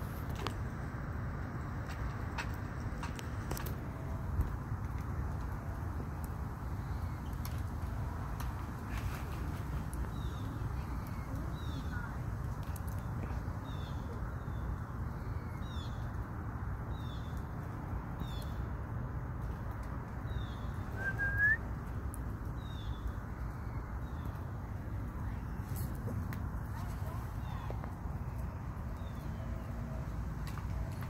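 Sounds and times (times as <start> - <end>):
rising whistled note: 21.0 - 21.6.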